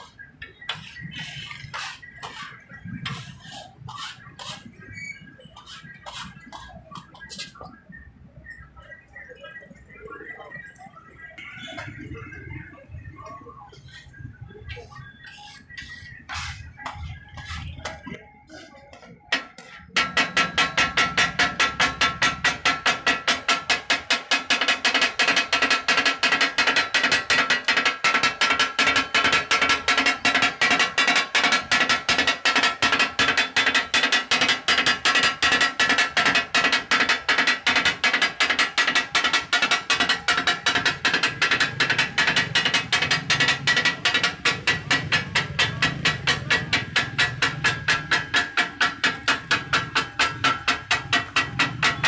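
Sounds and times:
music with fast beat: 10.6s - 52.0s
metal spatulas knocking on iron: 18.9s - 52.0s.

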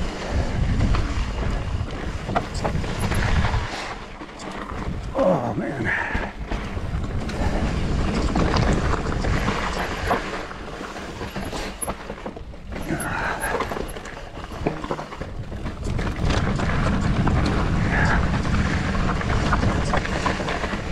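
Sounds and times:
wind rushing over microphone: 0.0s - 11.8s, 12.4s - 20.9s
bike frame rattling: 0.0s - 20.9s.

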